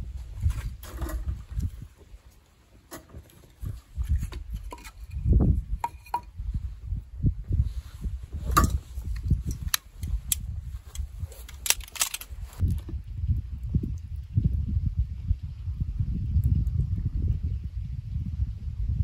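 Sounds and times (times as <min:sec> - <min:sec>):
steady low rumble: 0:03.6 - 0:19.0
burning wood crackling and popping: 0:08.3 - 0:14.2.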